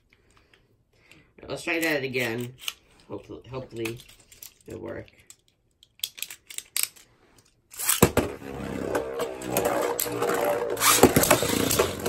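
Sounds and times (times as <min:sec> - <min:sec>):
spinning top whirring and scraping: 0:07.7 - 0:12.0.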